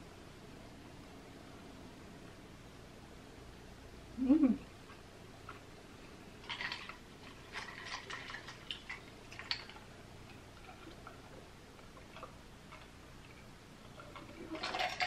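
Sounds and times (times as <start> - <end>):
ice cubes clinking in glass: 14.4 - 15.0.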